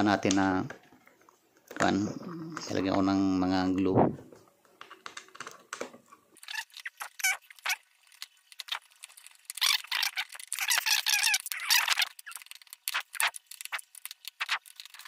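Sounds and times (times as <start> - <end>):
small hard parts clicking and rattling: 4.3 - 15.0.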